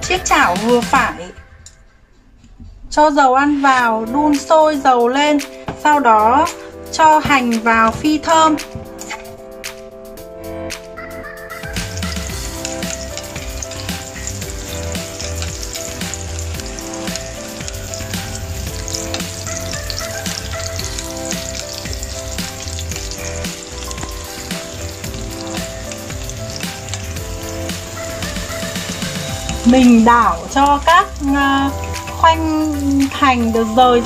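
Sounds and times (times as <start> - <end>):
background music: 0.0 - 34.0
shallots sizzling in hot oil: 11.7 - 34.0.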